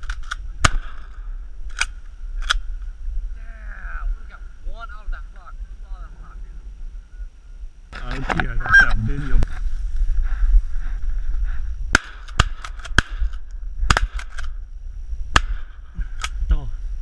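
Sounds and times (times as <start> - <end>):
shotgun blasts: 0.6 - 1.2, 11.9 - 14.5, 15.3 - 15.9.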